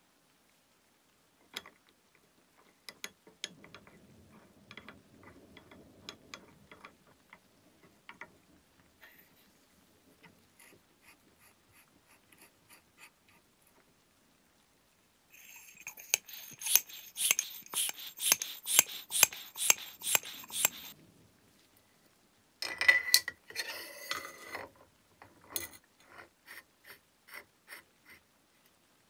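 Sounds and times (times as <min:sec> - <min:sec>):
sharp metallic clicks: 0:16.0 - 0:21.0.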